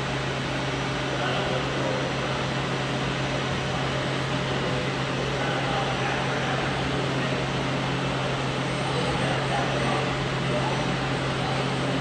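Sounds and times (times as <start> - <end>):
cnc machine whir and hiss: 0.0 - 12.0.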